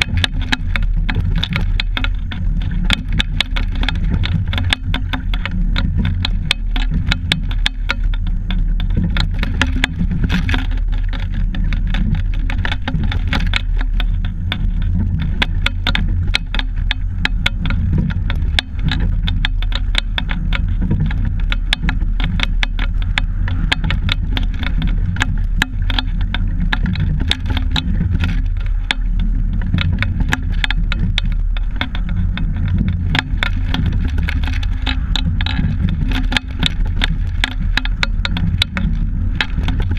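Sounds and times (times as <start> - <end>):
rattle of sharp clicks: 0.0 - 39.9
rumble of wind and water: 0.0 - 39.9.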